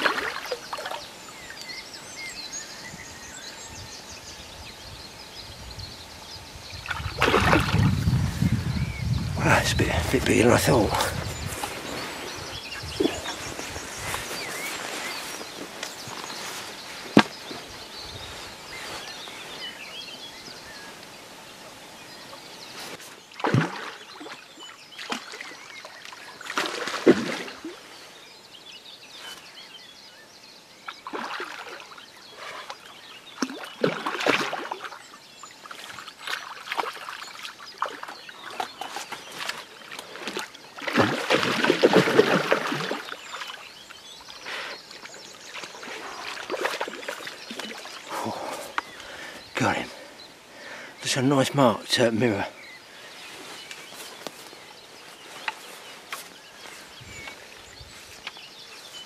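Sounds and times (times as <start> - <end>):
fish splashing in water: 0.0 - 1.1, 6.9 - 8.0, 23.3 - 27.8, 30.9 - 35.0, 35.6 - 43.6, 44.3 - 48.8.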